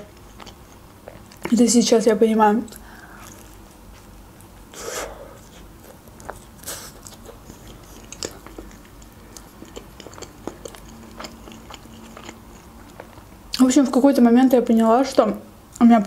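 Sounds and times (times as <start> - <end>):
chewing: 0.1 - 1.5, 5.3 - 13.3.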